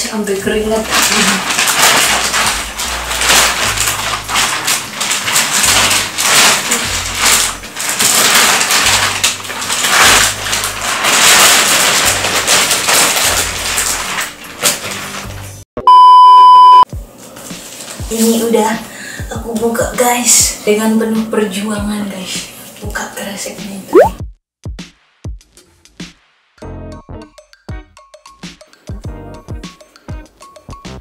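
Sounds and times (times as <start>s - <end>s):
plastic wrapping crinkling: 0.2s - 15.6s
electronic beep: 15.8s - 16.8s, 23.9s - 24.2s.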